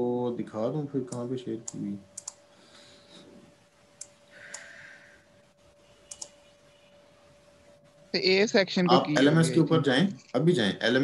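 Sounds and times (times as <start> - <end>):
faint electrical hum: 0.0 - 11.0
computer mouse clicks: 1.1 - 2.4, 4.0 - 4.7, 6.1 - 6.4.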